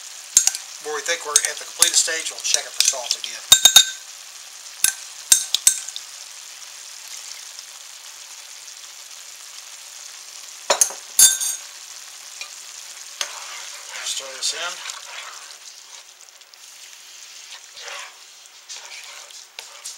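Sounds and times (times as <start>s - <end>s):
vegetables sizzling in skillet: 0.0s - 19.9s
metal spoon clinking on glass: 3.5s - 4.0s, 10.7s - 11.6s.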